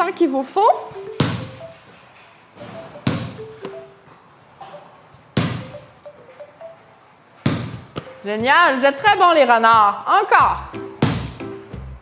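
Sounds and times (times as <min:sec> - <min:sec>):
ball bouncing on wooden floor: 0:05.4 - 0:05.6, 0:07.5 - 0:08.2.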